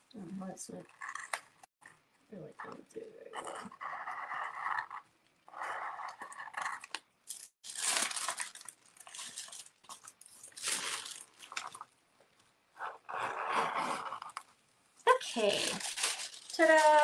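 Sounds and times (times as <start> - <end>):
paper rustling and crinkling: 6.6 - 11.9, 15.3 - 17.0.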